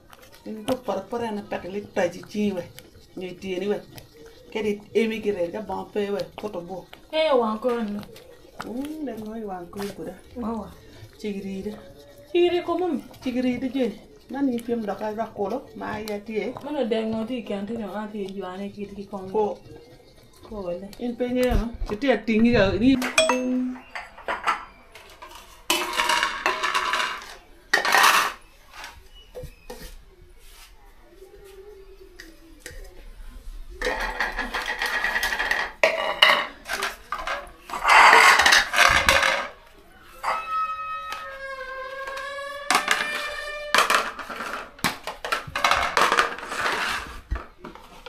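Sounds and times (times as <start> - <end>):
plastic plates clattering on concrete: 23.0 - 29.9, 33.8 - 41.4, 42.0 - 48.0
drawn-out pitched call: 40.0 - 43.8.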